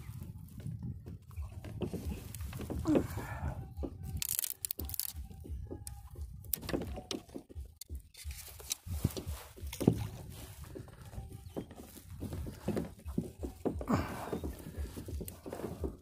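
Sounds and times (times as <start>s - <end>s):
wind rumble on microphone: 0.0s - 4.2s, 8.7s - 16.0s
dry branches cracking and snapping: 1.8s - 10.4s.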